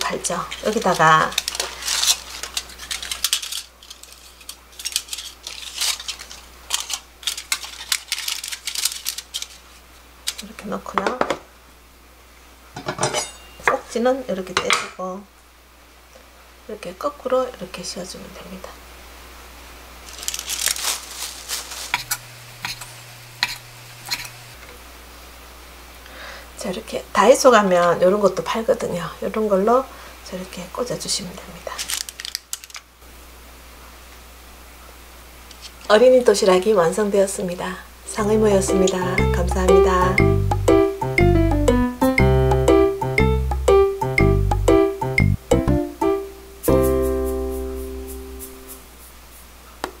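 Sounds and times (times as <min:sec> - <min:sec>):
foil and paper cups crinkling: 0:00.2 - 0:10.5, 0:20.0 - 0:24.3, 0:31.7 - 0:32.9.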